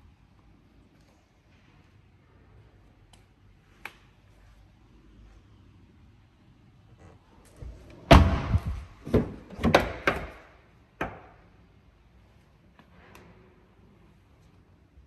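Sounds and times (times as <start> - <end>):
car door thumps and clunks: 8.0 - 10.4.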